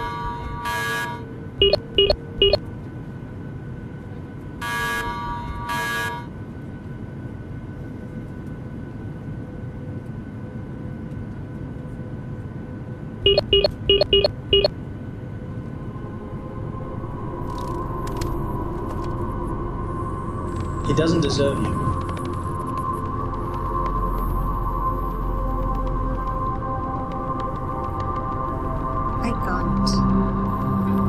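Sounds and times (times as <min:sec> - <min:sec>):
short beeps: 0:01.6 - 0:02.6, 0:13.3 - 0:14.7
low electronic drone: 0:13.2 - 0:31.0.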